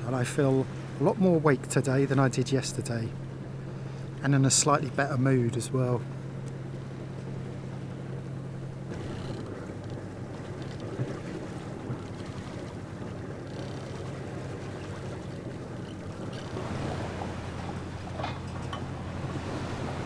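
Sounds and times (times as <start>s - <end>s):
boat engine droning: 0.0s - 20.0s
water rushing past hull: 0.0s - 20.0s
wind buffeting microphone: 6.2s - 20.0s.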